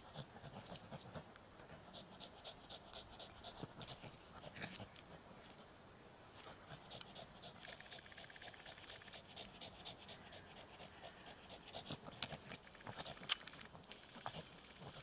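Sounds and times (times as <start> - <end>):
dog panting: 0.0 - 5.4, 6.4 - 15.0.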